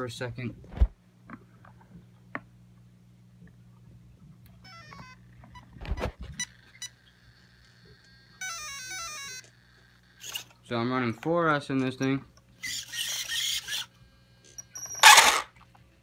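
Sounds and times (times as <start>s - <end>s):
motor power-up beeps: 14.5s - 15.5s.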